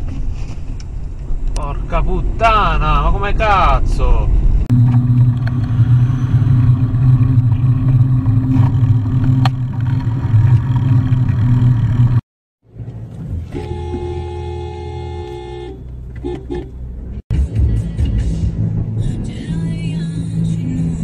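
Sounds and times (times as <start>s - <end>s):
traffic noise: 0.0s - 21.0s
vehicle engine and road rumble: 0.0s - 21.0s
car horn blast: 13.5s - 16.8s.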